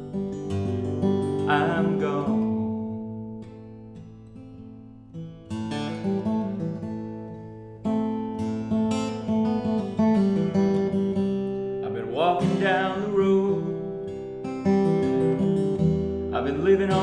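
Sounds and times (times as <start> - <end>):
acoustic guitar strummed: 0.0 - 17.0.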